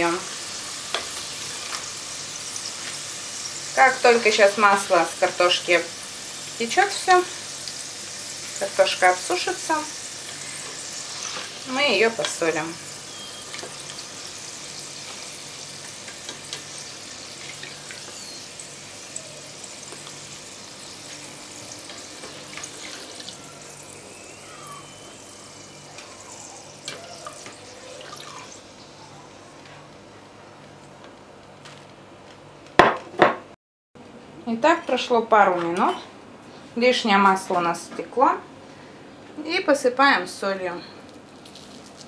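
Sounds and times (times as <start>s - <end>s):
hot oil sizzling: 0.0s - 30.0s, 41.1s - 42.0s.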